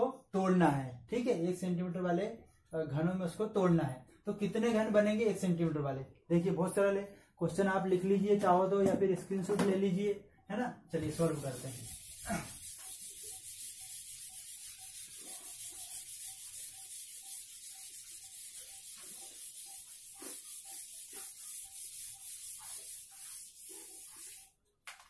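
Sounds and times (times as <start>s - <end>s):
duster rubbing on whiteboard: 11.0s - 24.6s.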